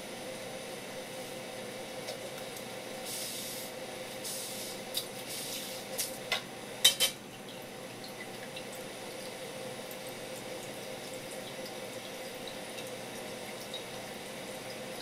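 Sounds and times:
steady hiss: 3.0 - 6.0.

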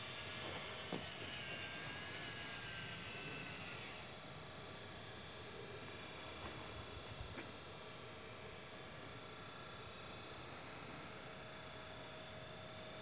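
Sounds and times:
hydraulic pump whining and hissing: 0.0 - 10.1.

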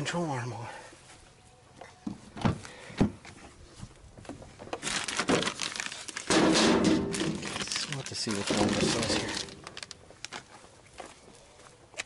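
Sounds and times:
plastic bag crinkling: 4.8 - 10.4.

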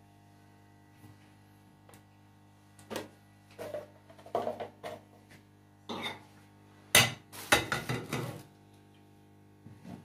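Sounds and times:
metal lid clanking and scraping: 5.9 - 6.2.

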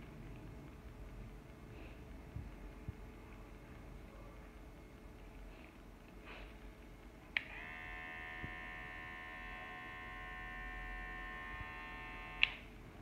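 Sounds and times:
hair clipper humming: 7.4 - 12.7
hair clipper switch click: 12.3 - 12.6.

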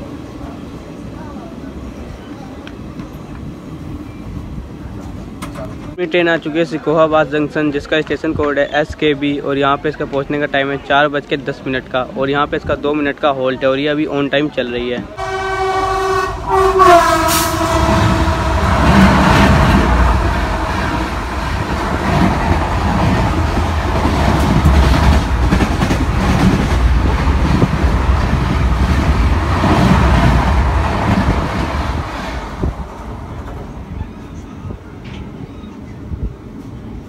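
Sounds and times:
train horn: 15.2 - 21.3
train wheels clacking over rail joints: 18.7 - 31.9.

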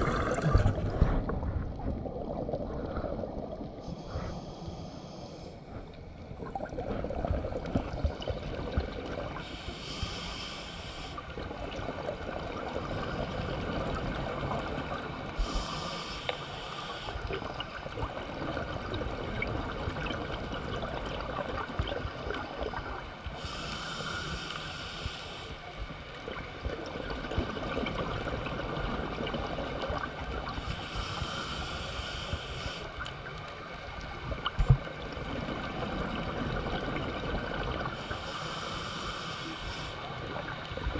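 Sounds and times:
low underwater rumble: 0.0 - 4.6
diver exhaled breath bubbling: 0.0 - 10.6.

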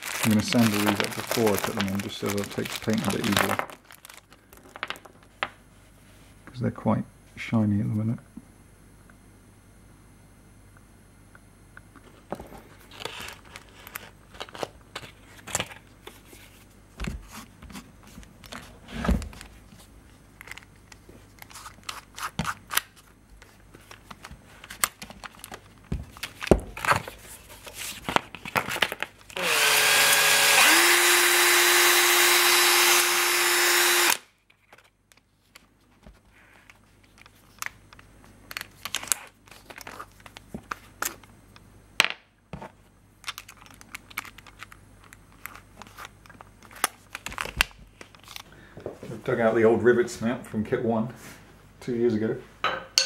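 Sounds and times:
cordless drill motor whine: 29.4 - 34.3.

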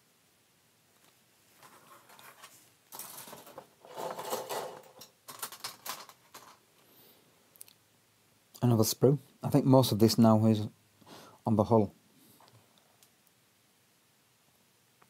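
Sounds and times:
plastic sprues rustling: 1.5 - 6.6.

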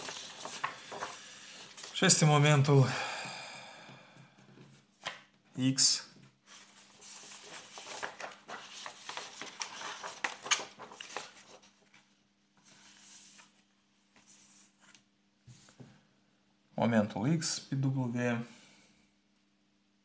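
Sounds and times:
paper rustling: 0.0 - 2.2, 6.4 - 15.7
faint steady hum: 0.0 - 20.0.

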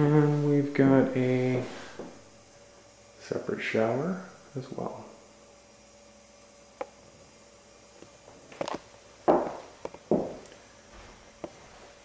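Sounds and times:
footsteps: 8.5 - 12.0.

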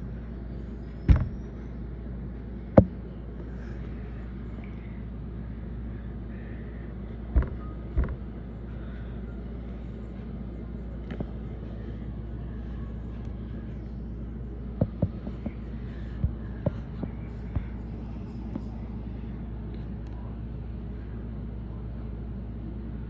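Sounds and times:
steady low hum: 0.0 - 23.0
sharp knocks and clicks: 1.1 - 1.4, 2.8 - 3.0, 7.4 - 8.2, 14.8 - 15.6.

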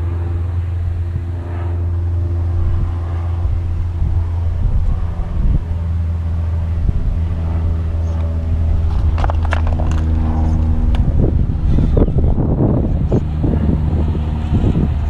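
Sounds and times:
tyres scraping on rock: 8.9 - 10.6.

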